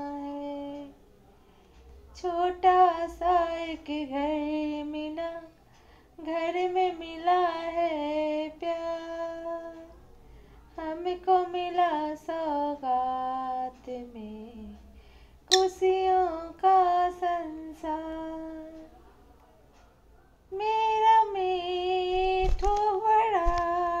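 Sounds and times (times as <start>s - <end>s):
woman singing unaccompanied: 0.0s - 1.0s, 2.2s - 5.6s, 6.2s - 10.0s, 10.7s - 18.9s, 20.5s - 24.0s.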